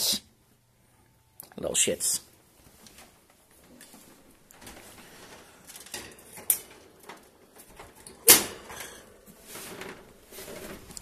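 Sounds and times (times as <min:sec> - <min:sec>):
wire cage door rattling: 0:05.7 - 0:09.0.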